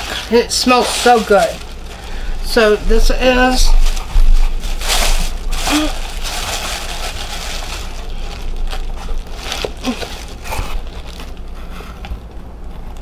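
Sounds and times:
tissue paper rustling: 0.0 - 12.0.

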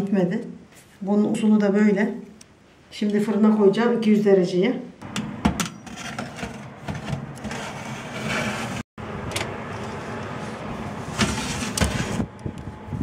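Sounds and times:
oven hum: 5.0 - 13.0
metal tray sliding into oven: 5.8 - 8.8, 11.0 - 12.2
tray scraping on oven rack: 5.8 - 8.9, 11.0 - 12.3.

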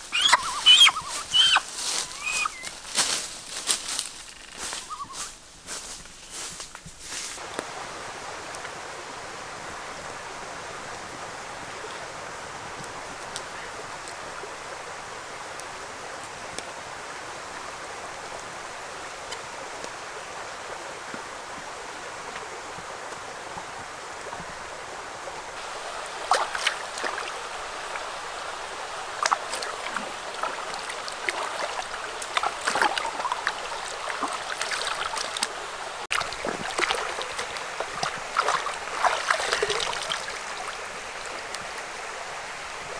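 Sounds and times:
splashing in water: 0.0 - 5.2, 25.6 - 41.8
shallow stream flowing: 0.0 - 5.8, 7.4 - 42.9.

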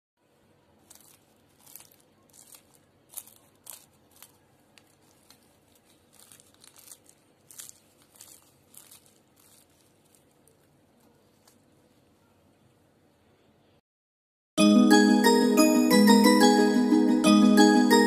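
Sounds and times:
pastry crust crackling: 0.3 - 12.2.

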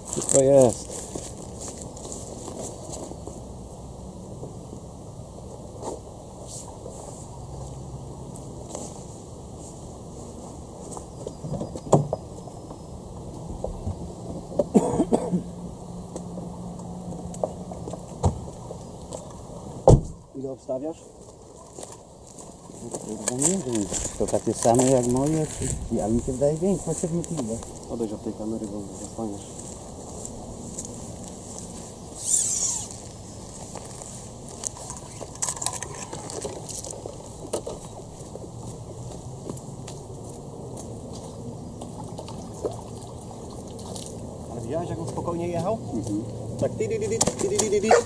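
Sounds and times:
footsteps on gravel: 0.0 - 3.2, 21.1 - 27.9, 28.6 - 42.1, 47.4 - 48.0
outdoor background noise: 0.0 - 48.0
person coughing: 14.7 - 15.5
nylon sling rustling: 32.2 - 35.4
plastic bucket clicks and rustles: 34.7 - 37.8.

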